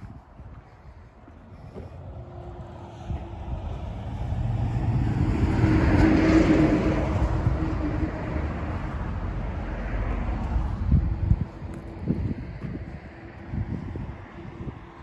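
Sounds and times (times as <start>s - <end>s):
wind rumble on microphone: 0.0s - 15.0s
car passing by: 1.9s - 13.5s.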